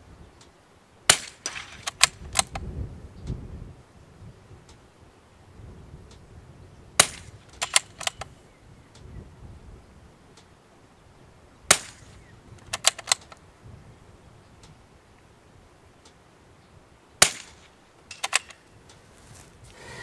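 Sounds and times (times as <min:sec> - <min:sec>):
rifle shots: 0:01.1 - 0:02.5, 0:07.0 - 0:08.3, 0:11.7 - 0:12.2, 0:17.2 - 0:18.6
rifle bolt clicking: 0:01.2 - 0:02.6, 0:07.0 - 0:08.3, 0:11.7 - 0:13.4, 0:17.2 - 0:18.7.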